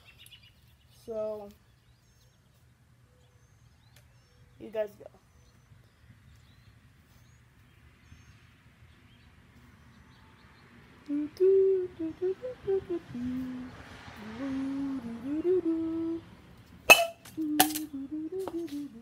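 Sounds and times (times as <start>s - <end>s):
faint outdoor background: 0.0s - 19.0s
person humming: 11.1s - 16.3s, 17.2s - 19.0s.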